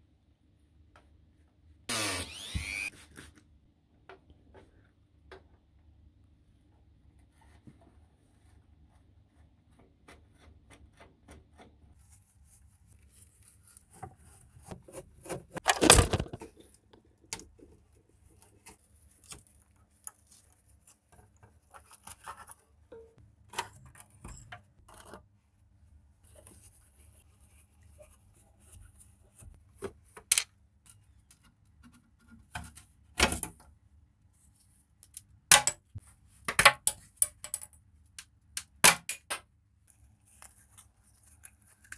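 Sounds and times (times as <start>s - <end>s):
screwdriver scraping screws: 1.9s - 2.9s.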